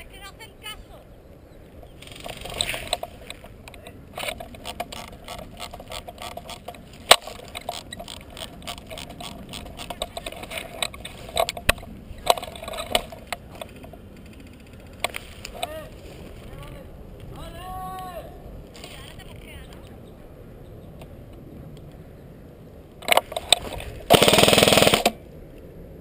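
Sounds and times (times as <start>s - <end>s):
rifle handling clicks and scrapes: 2.0s - 14.4s
sharp cracks: 2.0s - 15.8s, 23.0s - 25.2s.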